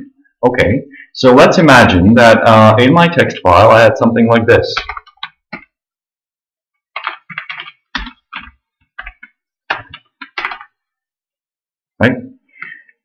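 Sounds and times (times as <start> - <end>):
computer keyboard typing: 4.7 - 5.8, 6.9 - 10.8.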